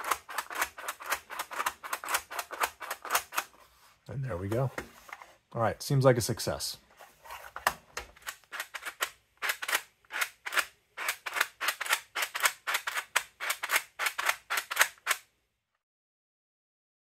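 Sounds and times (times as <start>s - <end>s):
mechanical counter plastic clicks: 8.2s - 15.2s.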